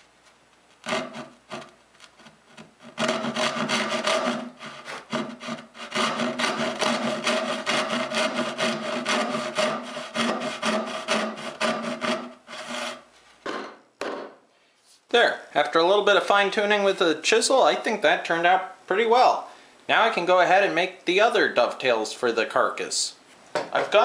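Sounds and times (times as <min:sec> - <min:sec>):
hand saw cutting wood: 0:00.8 - 0:13.0.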